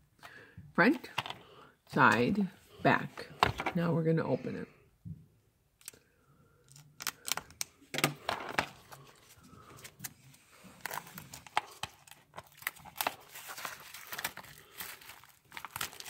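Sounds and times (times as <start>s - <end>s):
cellophane tearing and crinkling: 6.7s - 7.6s, 9.8s - 16.0s.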